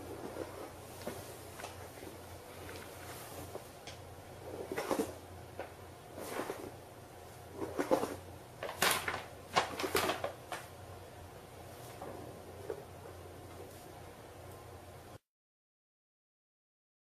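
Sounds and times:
paper bag rustling on hard floor: 0:07.7 - 0:10.7.

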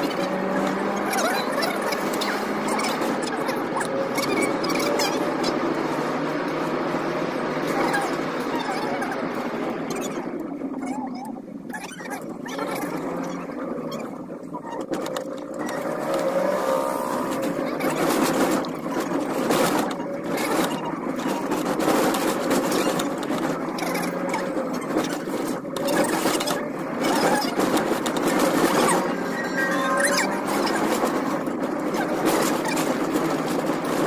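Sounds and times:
car engine with steady whine: 0:00.0 - 0:34.0
road noise inside car cabin: 0:00.0 - 0:34.0
knocks and rattles: 0:11.8 - 0:34.0.

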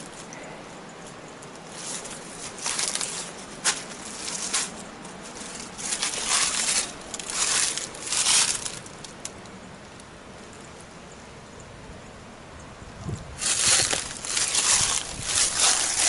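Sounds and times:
footsteps crunching dry leaves: 0:01.7 - 0:09.2, 0:13.4 - 0:16.0.

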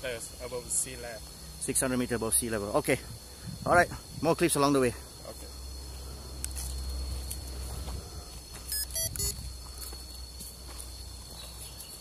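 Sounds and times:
forest insects droning: 0:00.0 - 0:12.0
footsteps on dirt trail: 0:05.9 - 0:12.0
short high-pitched chirps: 0:08.7 - 0:09.4.

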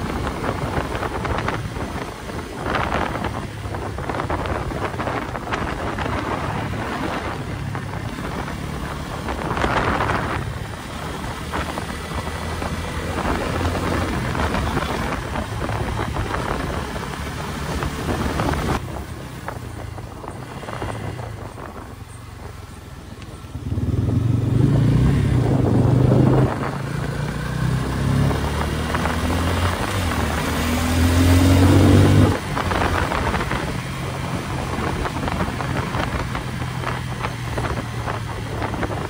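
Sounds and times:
motorcycle engine running: 0:00.0 - 0:39.0
wind buffeting microphone: 0:00.0 - 0:39.0.

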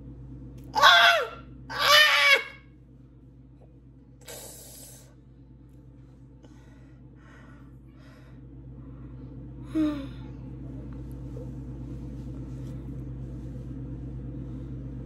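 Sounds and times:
steady low hum: 0:00.0 - 0:15.0
woman breathing: 0:06.3 - 0:10.4.

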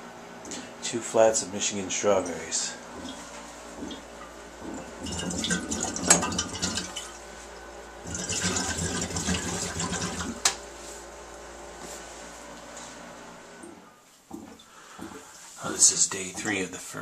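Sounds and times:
gas bubbling through water: 0:03.8 - 0:07.1, 0:08.0 - 0:10.4.

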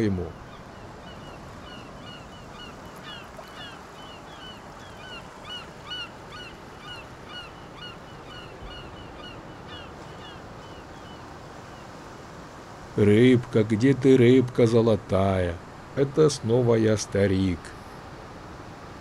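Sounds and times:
birds chirping: 0:00.0 - 0:12.0
steady background hiss: 0:00.0 - 0:19.0.

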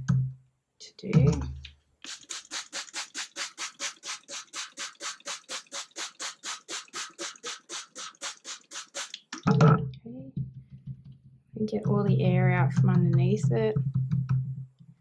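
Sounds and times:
spray bottle spritzing: 0:02.0 - 0:09.5.

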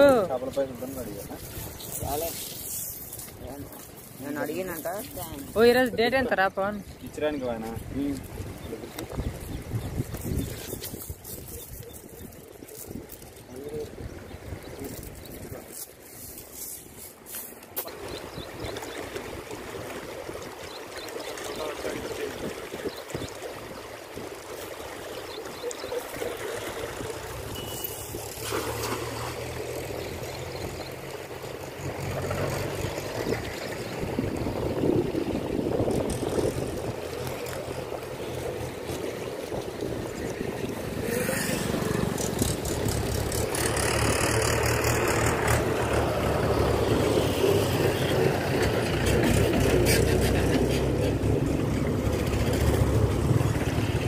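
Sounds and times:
stream water rushing: 0:13.8 - 0:54.0.

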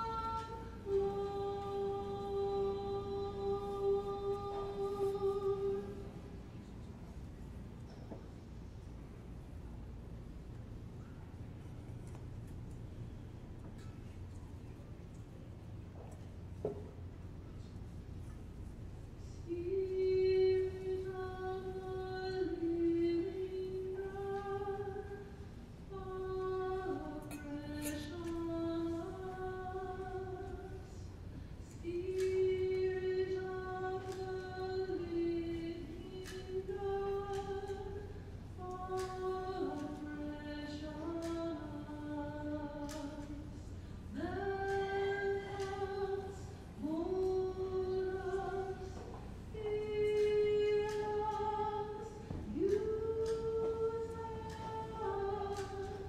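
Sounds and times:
woman singing a hymn: 0:00.0 - 0:06.9, 0:18.7 - 0:56.0.

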